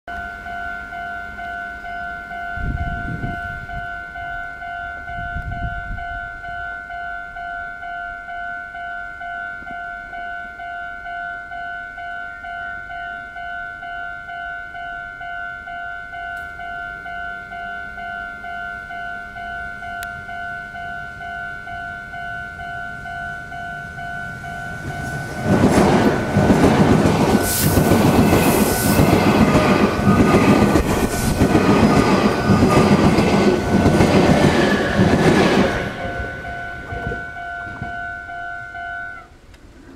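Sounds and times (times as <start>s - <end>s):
level crossing bell ringing: 0.1s - 30.9s, 31.7s - 39.2s
train wheels clattering over rail joints: 24.3s - 37.9s.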